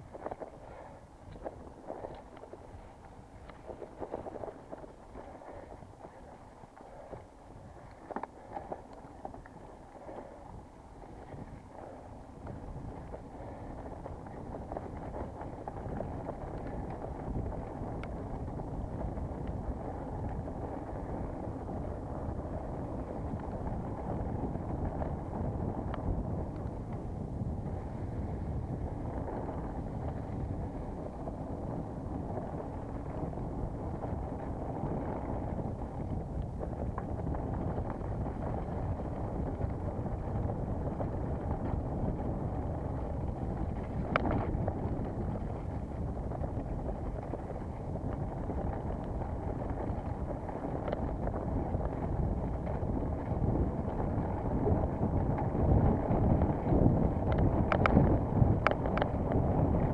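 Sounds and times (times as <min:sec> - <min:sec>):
mountain bike rumble: 0:00.0 - 0:59.9
wind rush on microphone: 0:00.0 - 0:59.9
faint clicks: 0:43.7 - 0:44.6, 0:57.2 - 0:59.4.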